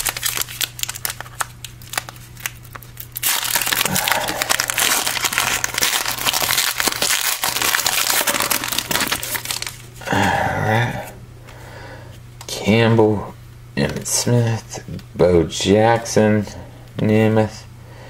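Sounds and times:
foil wrapper crinkling: 0.0 - 10.0.

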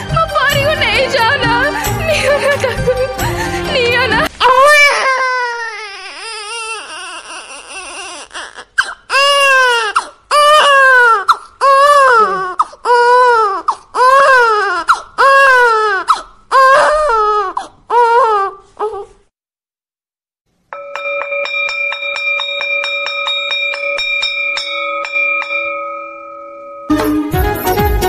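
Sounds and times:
infant crying: 4.4 - 19.2.

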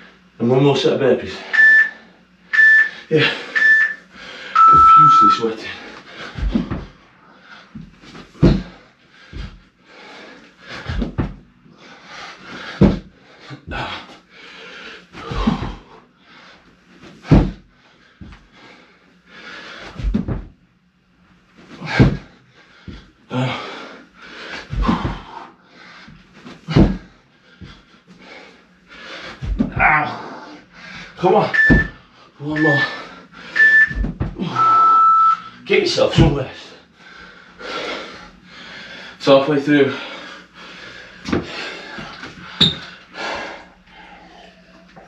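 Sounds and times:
heavy breathing: 1.3 - 20.0, 21.7 - 35.6, 36.4 - 45.0
body thudding on hard floor: 6.4 - 7.0, 7.8 - 8.8, 10.8 - 11.4, 12.8 - 13.1, 17.2 - 17.6, 20.0 - 20.5, 21.9 - 22.3, 24.7 - 25.3, 26.7 - 27.1, 29.4 - 29.9, 33.9 - 34.5.

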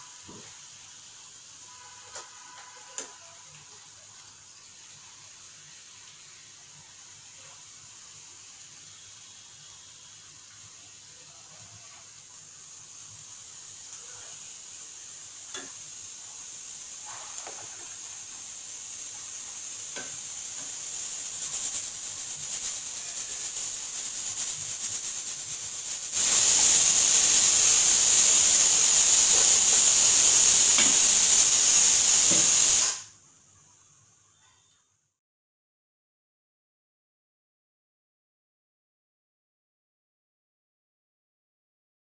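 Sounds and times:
hot oil sizzling: 0.0 - 34.4
loud steady hiss: 0.0 - 34.8.

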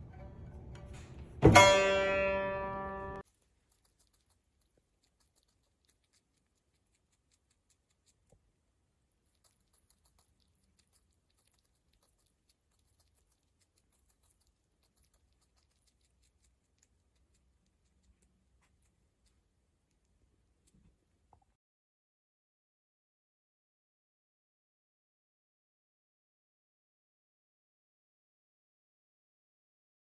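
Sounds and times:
rat nibbling food clicks: 3.2 - 21.5.

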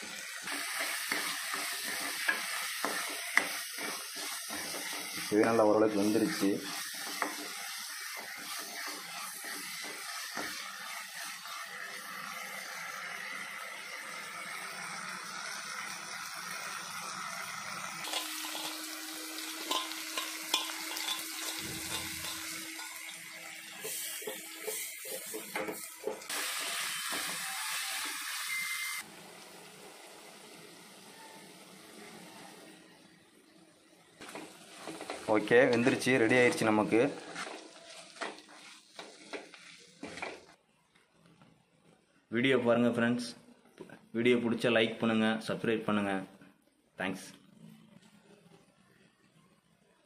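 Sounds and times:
food sizzling in a pan: 0.0 - 40.6
ladle scraping a pan: 18.0 - 23.2.

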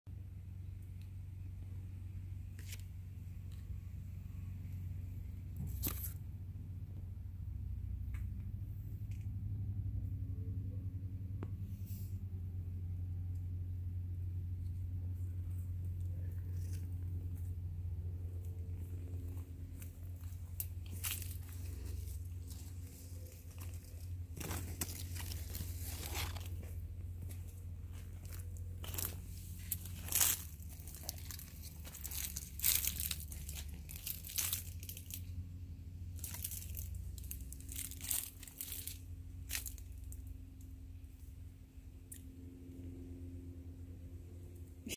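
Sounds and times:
steady low rumble: 0.1 - 44.9
leaves rustling and crackling: 18.2 - 35.4, 36.1 - 40.3.

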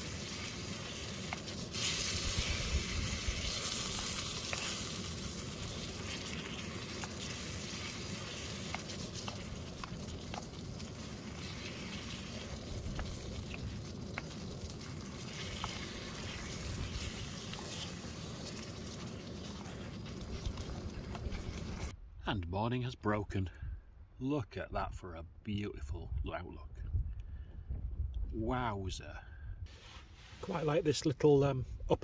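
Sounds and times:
stew sizzling and bubbling: 0.0 - 22.0.

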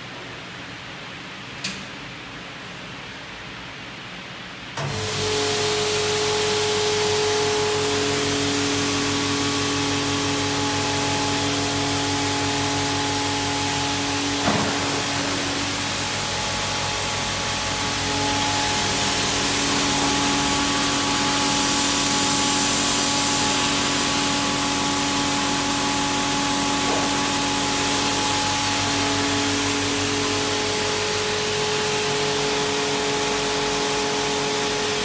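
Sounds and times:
machine whine: 4.8 - 35.0
high-pressure spray hissing: 12.3 - 32.0.

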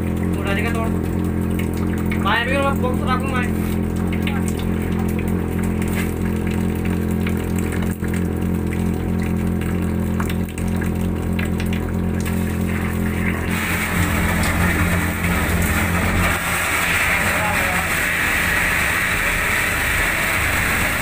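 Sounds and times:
suction machine engine drone: 0.0 - 21.0
loud hissing rush: 13.4 - 21.0.

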